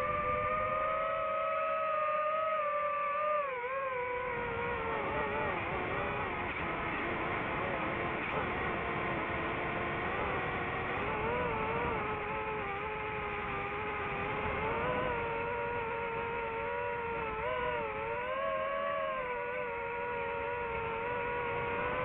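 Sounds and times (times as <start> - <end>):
drone propellers whining: 0.0 - 22.0.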